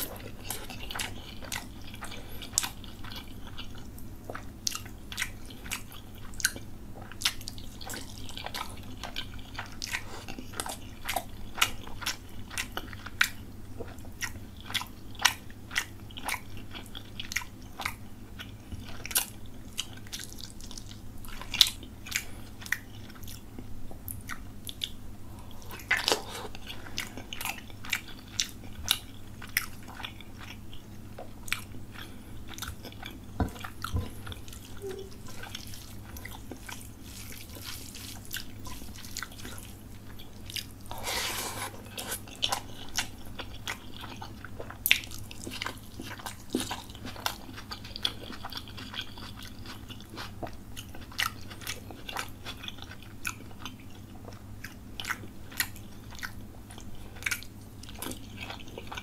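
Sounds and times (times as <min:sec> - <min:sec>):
faint low hum: 0:00.0 - 0:59.0
wet chewing: 0:24.1 - 0:59.0.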